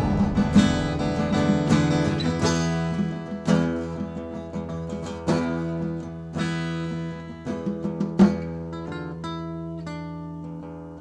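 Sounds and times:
acoustic guitar strumming: 0.0s - 11.0s.

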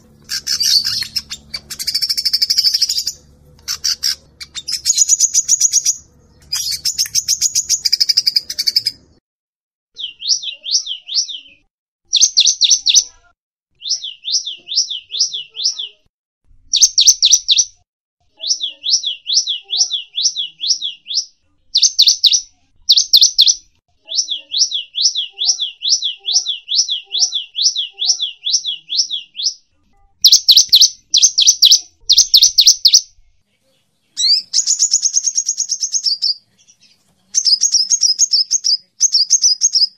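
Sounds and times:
songbird trilling: 0.0s - 9.0s, 30.2s - 33.1s, 34.2s - 36.4s, 37.4s - 39.9s.

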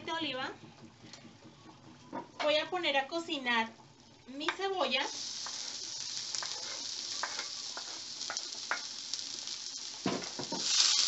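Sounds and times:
onions sizzling in oil: 4.0s - 11.0s.

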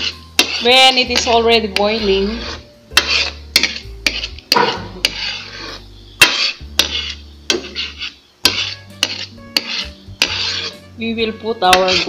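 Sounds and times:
spoon scraping pan: 0.0s - 12.0s
spoon knocking against pan: 3.0s - 5.2s, 6.2s - 7.8s, 8.4s - 10.6s.

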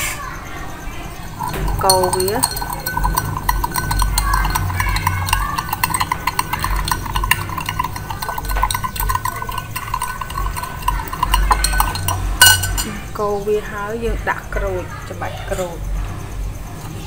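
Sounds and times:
spoon clinking in glass: 1.3s - 13.0s.

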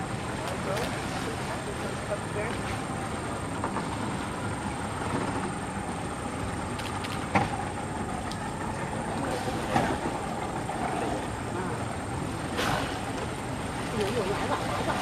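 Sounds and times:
elephants wading through water: 0.0s - 15.0s
steady background noise: 0.0s - 15.0s
sharp water splashes: 12.0s - 15.0s.

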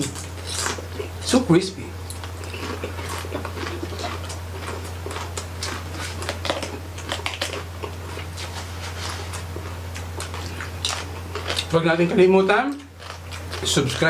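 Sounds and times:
chewing crispy pork skin: 0.0s - 14.0s
low steady hum: 0.0s - 14.0s.

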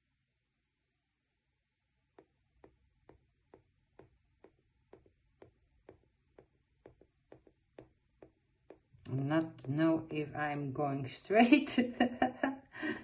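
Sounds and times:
low steady hum: 0.0s - 13.0s
faint evenly spaced clicks: 2.1s - 10.1s.

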